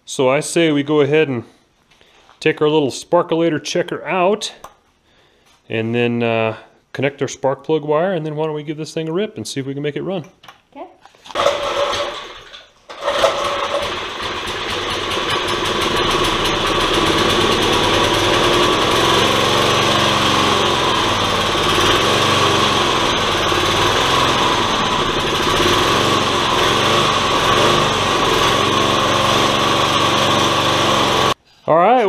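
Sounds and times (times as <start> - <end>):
small engine recoil-started and running: 11.3 - 31.4.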